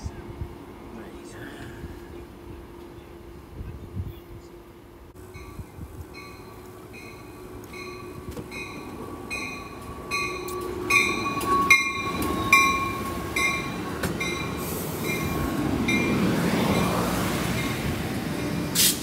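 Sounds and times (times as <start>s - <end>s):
train wheels rumbling: 0.0s - 19.0s
bell ringing: 6.2s - 16.2s.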